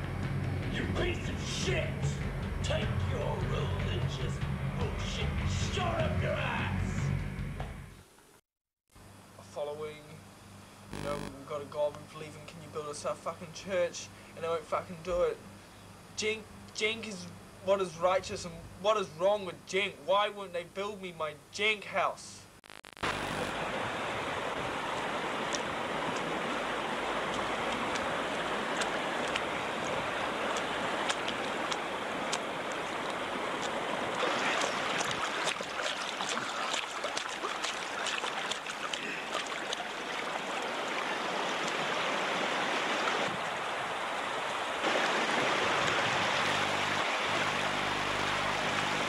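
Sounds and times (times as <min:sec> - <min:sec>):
water splashing and running: 0:23.2 - 0:49.0.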